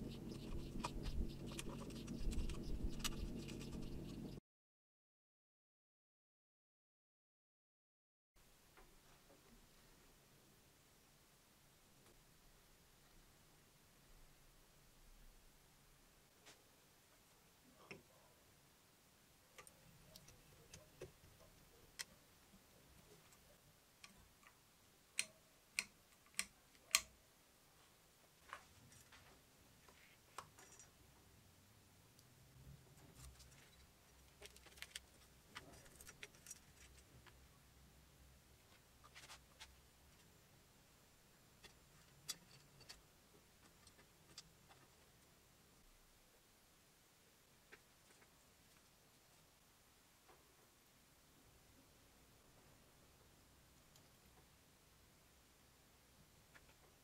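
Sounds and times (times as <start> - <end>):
clicks of wire connectors: 25.2 - 27.1.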